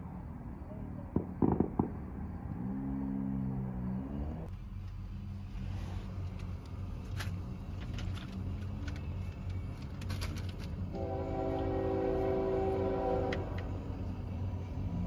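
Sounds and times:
train rumbling: 0:04.4 - 0:15.0.

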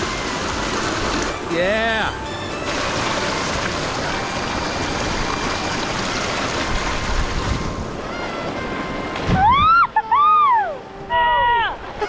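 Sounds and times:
rushing water: 0:00.0 - 0:12.0
wind: 0:00.0 - 0:12.0
people whooping: 0:08.0 - 0:11.8.

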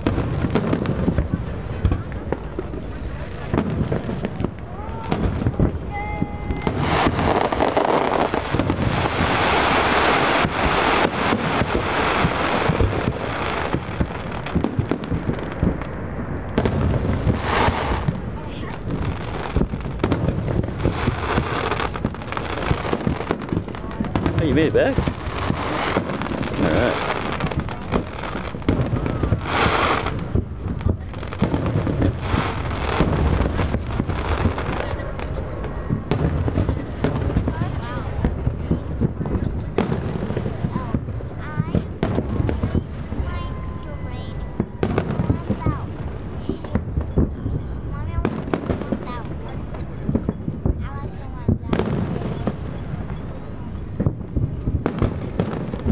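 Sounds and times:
fireworks bangs: 0:00.0 - 0:55.9
fireworks crackling: 0:00.0 - 0:55.9
firework whistle: 0:42.0 - 0:45.9.

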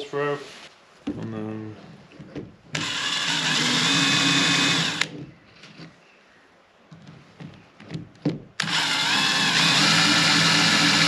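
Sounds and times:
electric drill running: 0:02.7 - 0:05.2, 0:08.6 - 0:11.0
light handling knocks: 0:06.9 - 0:08.6.

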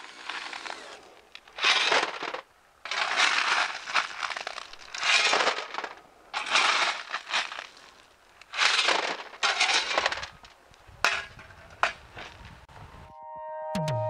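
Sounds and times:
shovel scraping into gravel: 0:00.0 - 0:10.5
stones rattling into wheelbarrow: 0:01.4 - 0:12.5.

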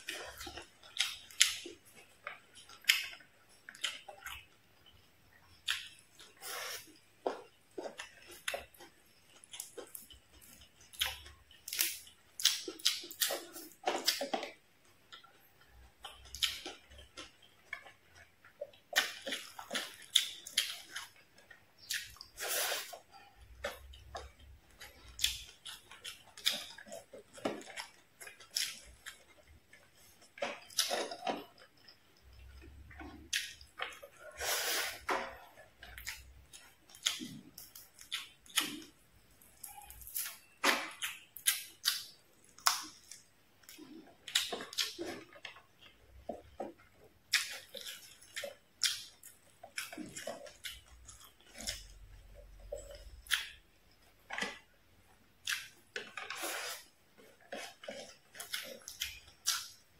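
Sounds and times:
wet chewing and mouth smacks: 0:00.0 - 0:59.9.

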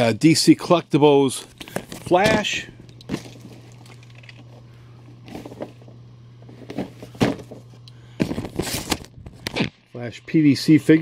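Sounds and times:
steady low hum: 0:00.0 - 0:11.0
packaging knocks and rustles: 0:01.6 - 0:04.6.

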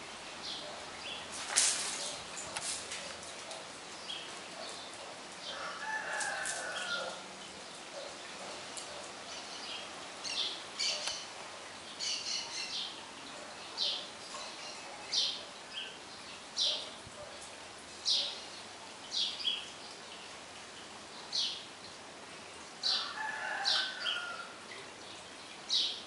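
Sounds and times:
distant rooster crowing: 0:05.5 - 0:07.3, 0:22.8 - 0:24.6.

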